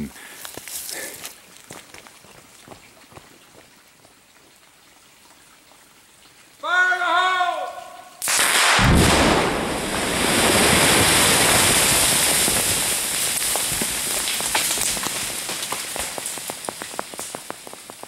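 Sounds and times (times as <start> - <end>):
explosion with deep boom: 8.3 - 12.9
rush of debris: 8.3 - 18.0
stones and gravel falling: 9.9 - 18.0.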